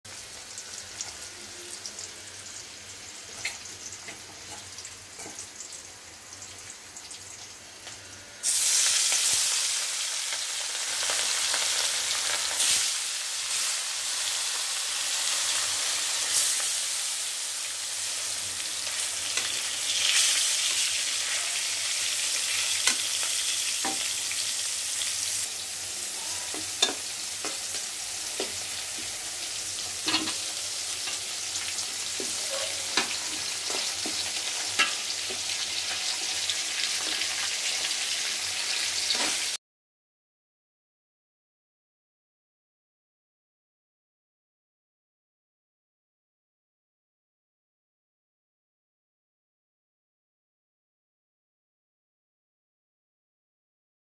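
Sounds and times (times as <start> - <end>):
food sizzling in hot oil: 0.1 - 39.6
metal spatula scraping pan: 30.0 - 35.5.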